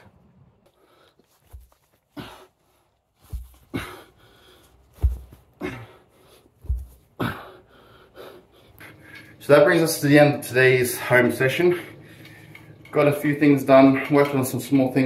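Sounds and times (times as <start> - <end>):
man breathing hard: 2.0 - 9.4
dull low thump: 4.9 - 5.4.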